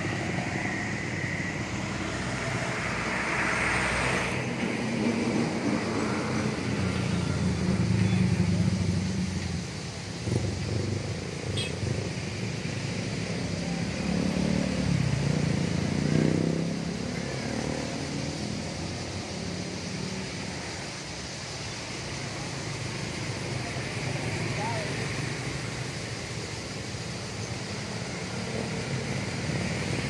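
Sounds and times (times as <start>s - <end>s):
vehicle engines running: 0.0s - 30.0s
vehicle passing: 12.8s - 20.6s.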